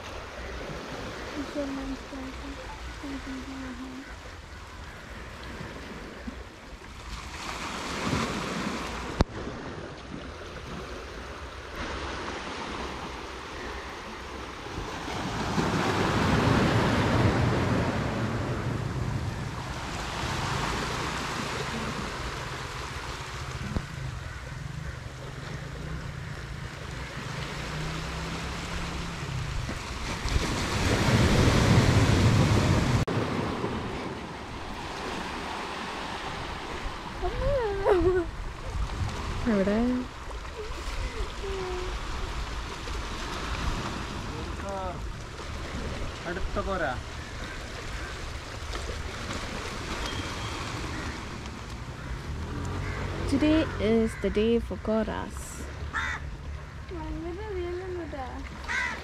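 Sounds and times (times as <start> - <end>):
sea surf breaking on beach: 7.0 - 25.0, 27.1 - 54.0
wind rumbling on microphone: 14.6 - 53.8.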